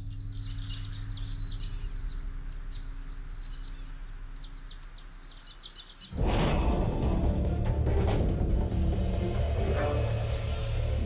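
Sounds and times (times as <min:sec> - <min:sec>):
faint low hum: 0:00.0 - 0:06.1
songbirds chirping: 0:00.0 - 0:11.0
loud burst of music: 0:06.2 - 0:11.0.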